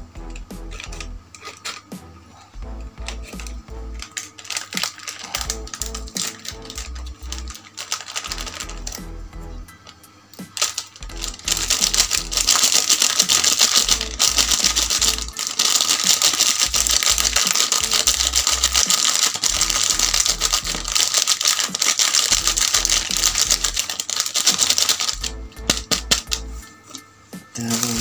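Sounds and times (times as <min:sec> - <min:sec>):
background music with bass: 0:00.0 - 0:01.3, 0:01.9 - 0:04.1, 0:05.3 - 0:07.6, 0:08.3 - 0:09.8, 0:11.0 - 0:12.6, 0:13.8 - 0:15.4, 0:16.7 - 0:18.8, 0:19.6 - 0:21.0, 0:25.2 - 0:26.7, 0:27.4 - 0:28.0
foil sachet crinkling: 0:00.7 - 0:02.0, 0:03.0 - 0:09.1, 0:09.8 - 0:28.0.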